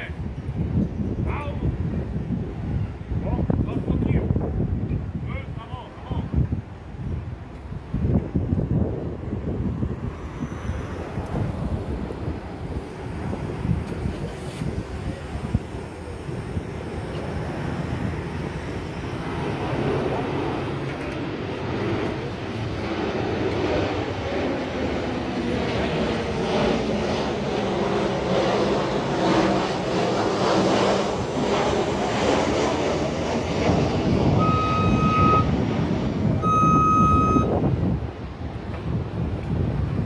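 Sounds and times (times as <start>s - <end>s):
jet engines rumbling: 0.0s - 40.0s
electronic beeps: 34.4s - 35.5s, 36.4s - 37.5s.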